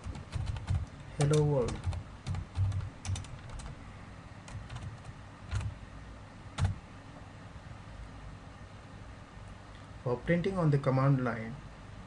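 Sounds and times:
computer keyboard typing: 0.0 - 3.8, 4.5 - 5.8, 6.6 - 6.8.

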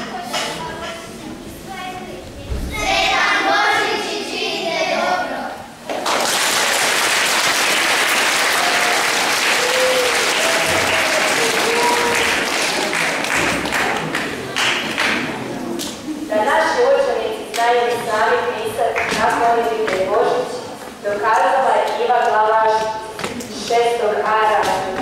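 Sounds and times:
audience clapping: 5.9 - 16.0.

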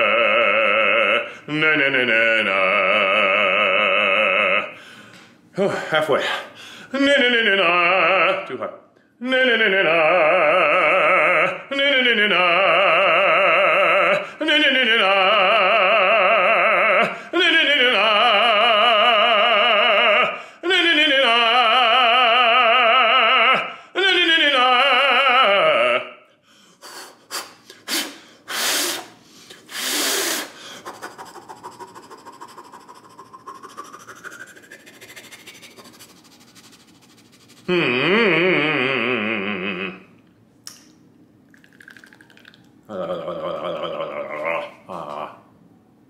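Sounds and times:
man singing vocal exercises: 0.0 - 4.8, 5.6 - 26.3, 27.1 - 40.8, 42.9 - 45.5
loud breaths: 4.7 - 7.0, 26.4 - 36.9.

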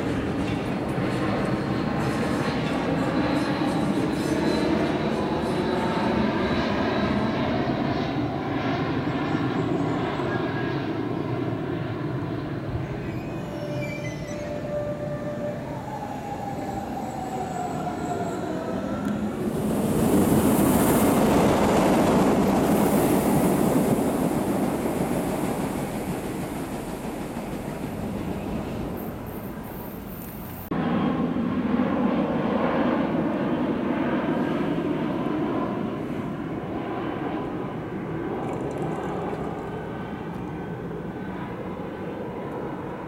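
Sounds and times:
train wheels on rails: 0.0 - 3.1, 13.0 - 30.7
diesel locomotive engines: 0.0 - 31.4, 33.1 - 43.0
jet airliner passing overhead: 0.0 - 43.0.

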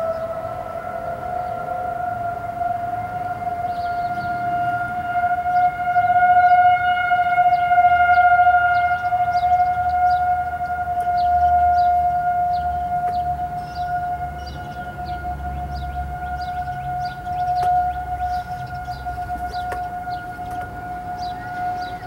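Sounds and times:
distant tornado sirens wailing: 0.0 - 22.0.

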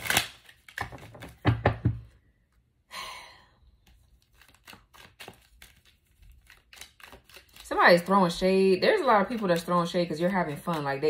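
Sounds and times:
breathy sigh: 2.9 - 3.7
cards being shuffled: 3.8 - 11.0.

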